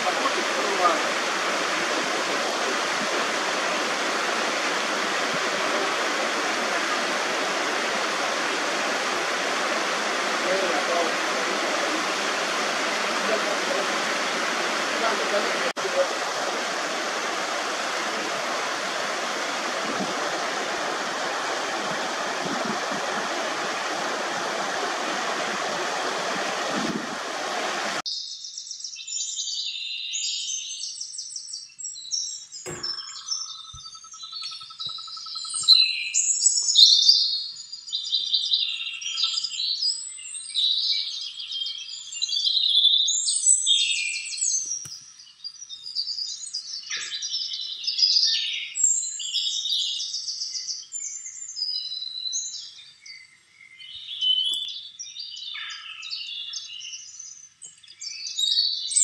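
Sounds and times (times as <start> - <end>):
water rushing over rocks: 0.0 - 28.0, 32.7 - 33.6
songbirds chirping: 28.0 - 59.0
brief knock: 32.6 - 33.1.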